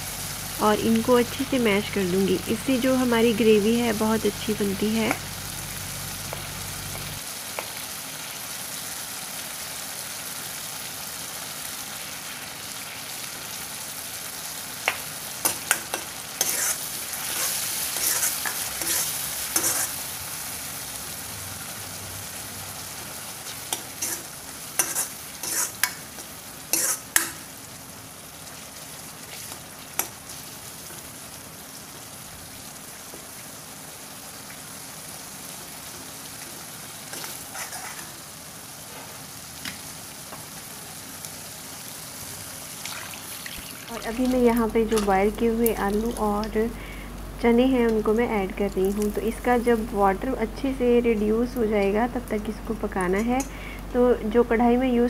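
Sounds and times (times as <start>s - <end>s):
food sizzling in a pan: 0.0s - 55.0s
spoon scraping the pan: 15.4s - 20.0s, 23.5s - 27.4s, 37.1s - 38.2s.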